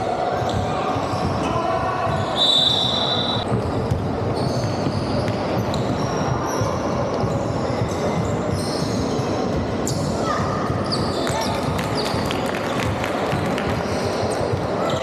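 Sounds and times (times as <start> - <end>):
hubbub of players and spectators: 0.0 - 15.0
shoes squeaking on wooden court: 0.4 - 12.2
basketball bouncing: 3.4 - 6.6.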